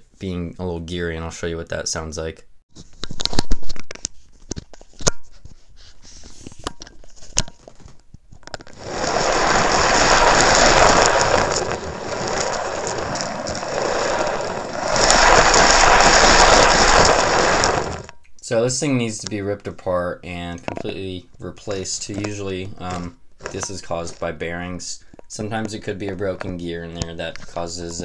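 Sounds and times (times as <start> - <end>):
rough fishing reel gear noise: 8.7 - 18.1.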